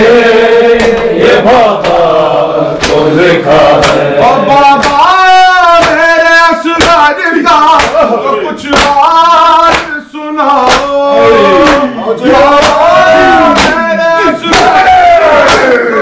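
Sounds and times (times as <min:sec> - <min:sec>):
male voices chanting in unison: 0:00.0 - 0:16.0
hands slapping chests: 0:00.7 - 0:02.2, 0:02.8 - 0:10.0, 0:10.6 - 0:11.0, 0:11.6 - 0:13.9, 0:14.5 - 0:15.8.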